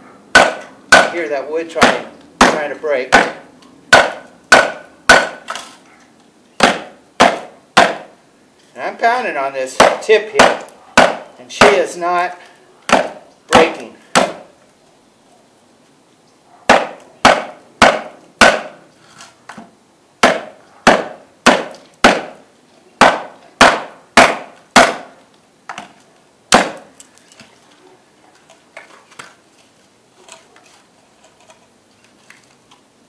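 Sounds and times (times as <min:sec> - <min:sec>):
baton pounding on knife blade: 0:00.4 - 0:05.4, 0:06.6 - 0:08.1, 0:09.8 - 0:11.8, 0:12.9 - 0:14.5, 0:16.7 - 0:18.8, 0:20.2 - 0:22.4, 0:23.0 - 0:25.2, 0:26.5 - 0:26.9.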